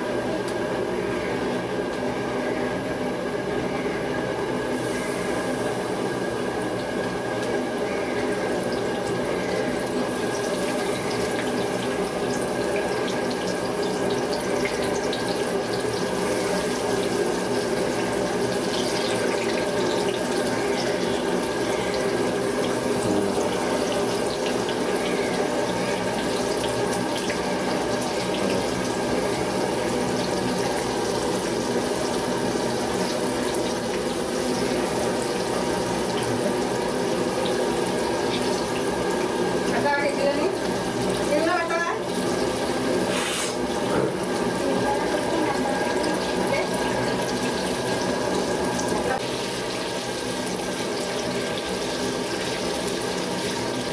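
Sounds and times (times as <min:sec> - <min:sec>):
steady hum: 0:00.0 - 0:45.8
peppers deep-frying in oil: 0:00.0 - 0:53.9.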